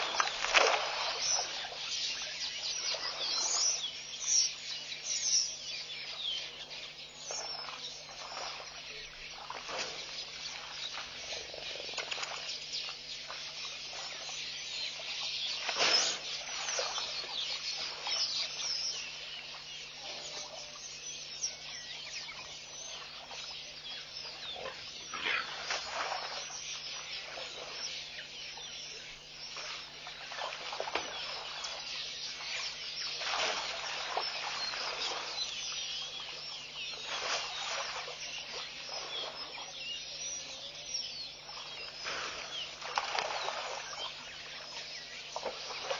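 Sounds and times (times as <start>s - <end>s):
elephant sloshing in mud and water: 0.0s - 3.9s, 6.8s - 20.8s, 21.5s - 45.9s
steady low hum: 0.0s - 45.9s.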